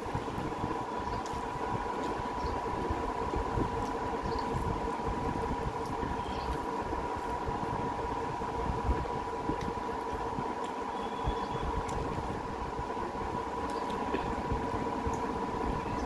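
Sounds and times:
mechanical hum with whine: 0.0 - 16.0.

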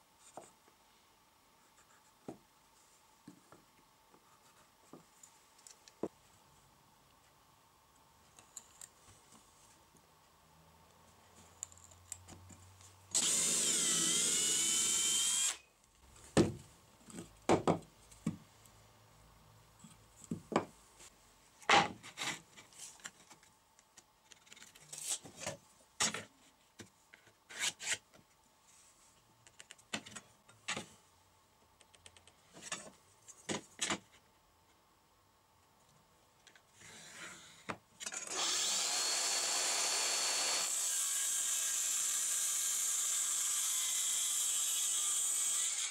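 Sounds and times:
power tool running: 13.1 - 15.6, 38.2 - 45.9.

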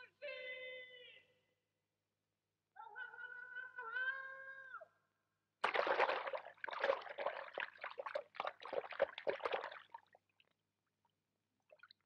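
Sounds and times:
water splashing: 5.6 - 10.2.

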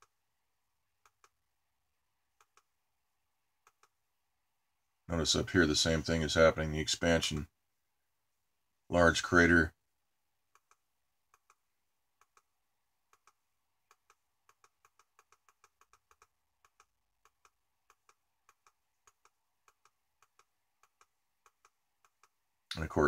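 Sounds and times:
computer mouse clicks: 1.0 - 1.4, 2.4 - 2.7, 3.6 - 4.0, 10.5 - 11.6, 12.2 - 12.5, 13.1 - 22.4.

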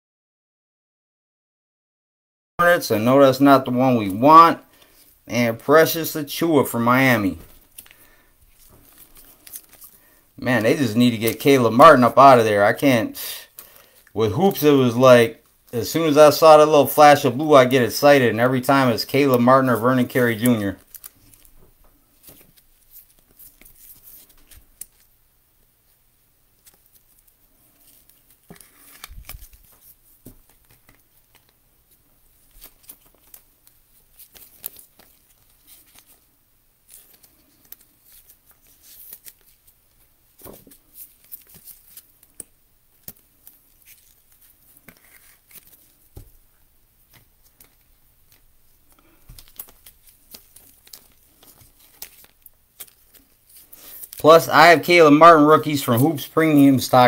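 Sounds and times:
trading cards clicking and rustling: 3.8 - 14.7, 15.9 - 25.1, 26.6 - 57.0
plastic crinkles: 7.2 - 11.6, 18.6 - 25.2, 26.5 - 55.0.

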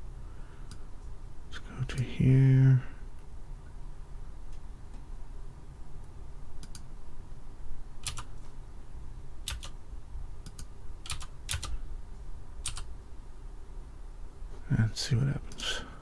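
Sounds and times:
low steady hum: 0.0 - 16.0
computer keys clicking: 6.6 - 6.9, 8.0 - 8.4, 9.4 - 9.8, 10.4 - 11.8, 12.6 - 12.9.

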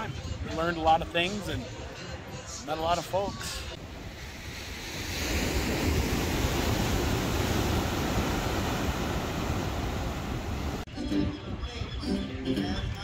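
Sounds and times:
ocean surf breaking: 3.6 - 10.9
wind rumbling on microphone: 3.8 - 13.0.

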